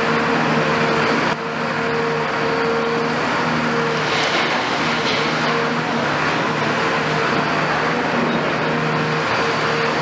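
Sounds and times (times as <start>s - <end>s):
diesel excavator engine humming: 0.0s - 10.0s
falling rubble: 3.9s - 6.3s.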